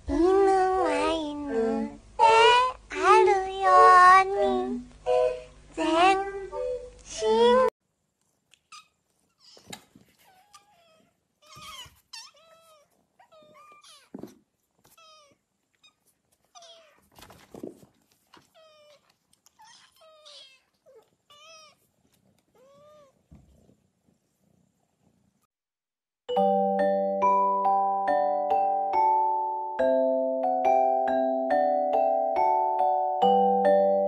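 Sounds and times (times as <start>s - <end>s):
kittens meowing: 8.7s - 14.2s, 14.9s - 17.1s, 18.4s - 21.8s.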